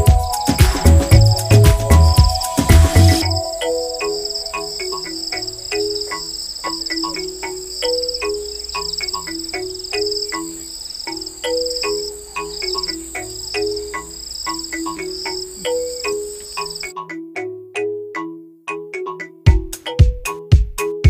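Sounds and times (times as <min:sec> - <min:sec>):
high insect-like trill: 0:00.0 - 0:16.9
melody of short low notes: 0:00.0 - 0:16.9.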